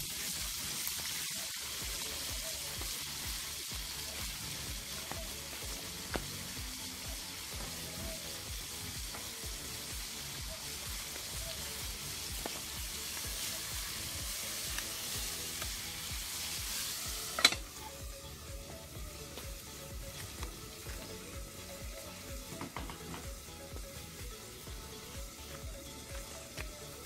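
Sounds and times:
chicken sizzling in hot oil: 0.0s - 27.0s
metal lid clanking on pot: 17.4s - 17.6s.

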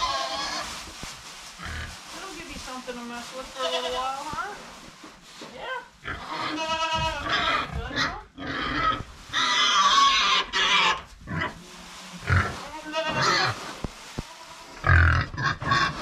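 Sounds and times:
pigs calling: 6.0s - 11.6s, 14.8s - 16.0s.

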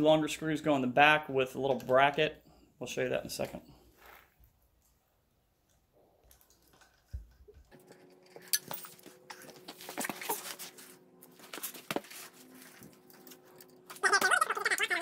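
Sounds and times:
steady low hum: 5.2s - 14.0s.

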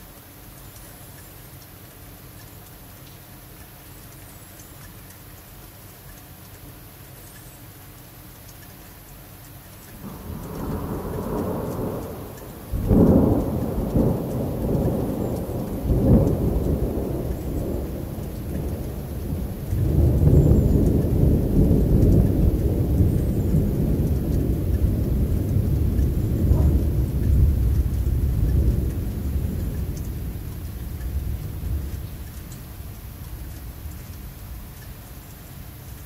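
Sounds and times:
rain falling: 0.0s - 36.0s
loud thunder clap: 10.0s - 32.4s
thunder rumbling: 10.0s - 34.9s.

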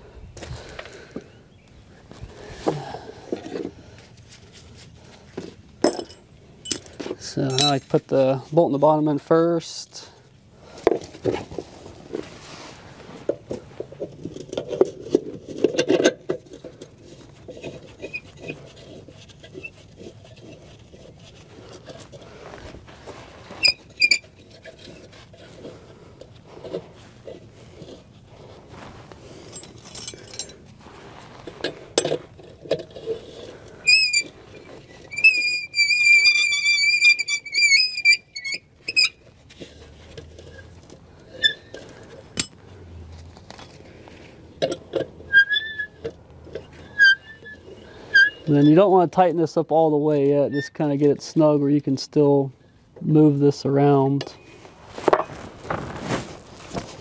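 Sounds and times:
metal tools clinking: 5.8s - 8.1s, 29.4s - 30.7s, 41.4s - 42.6s
high wavering squeal: 34.9s - 39.2s.

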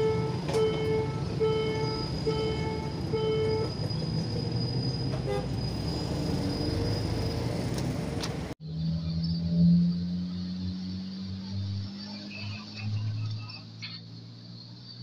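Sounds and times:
horn-like beep: 0.0s - 3.7s
vehicles driving over rails: 0.0s - 14.2s.

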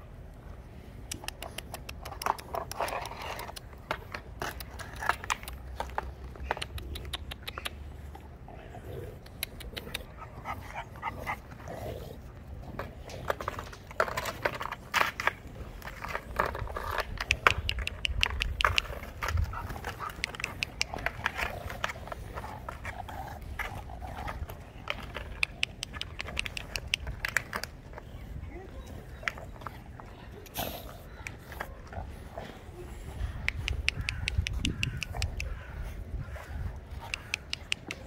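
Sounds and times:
plastic bottle crackling on paving: 12.8s - 28.3s.

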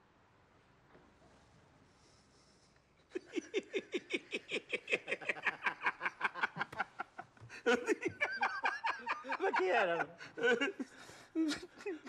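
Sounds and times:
men laughing: 3.1s - 12.0s.

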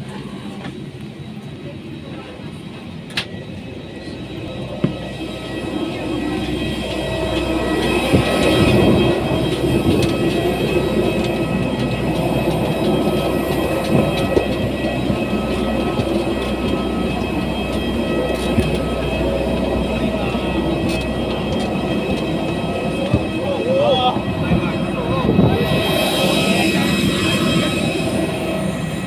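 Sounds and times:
jet turbines droning: 0.0s - 29.0s
footsteps on metal stairs: 7.6s - 19.1s.

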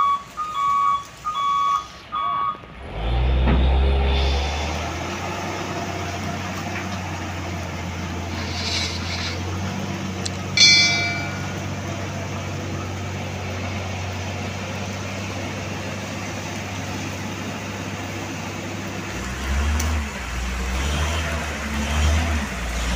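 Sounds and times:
diesel truck engine running: 0.0s - 22.9s
ringing metal clank: 10.5s - 12.3s.

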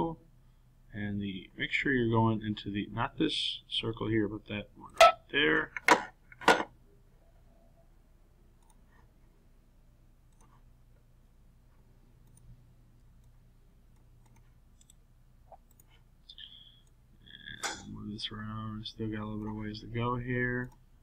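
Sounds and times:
faint room hum: 0.0s - 21.0s
soft clicks: 8.6s - 8.9s, 10.3s - 10.6s, 12.2s - 17.0s
computer mouse click: 10.3s - 10.6s, 12.2s - 12.5s, 13.2s - 15.0s, 15.6s - 17.0s.

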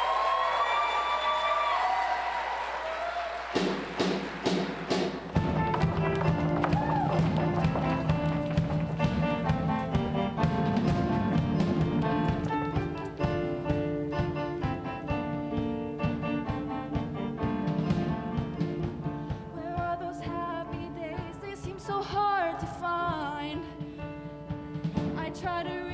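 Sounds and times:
steady drum beat: 3.5s - 19.2s
live band playing: 3.6s - 19.5s.

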